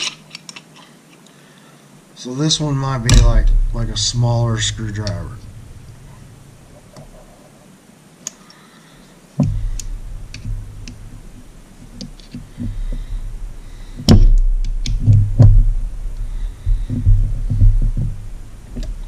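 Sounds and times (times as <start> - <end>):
low rumble: 2.4 - 7.6, 9.4 - 19.0
sudden knock: 2.9 - 7.2, 9.4 - 18.3.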